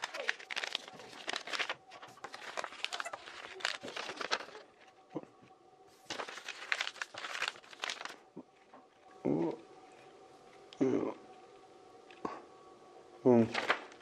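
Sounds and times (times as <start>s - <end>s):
paper folding and crinkling: 0.0s - 9.2s, 13.4s - 14.0s.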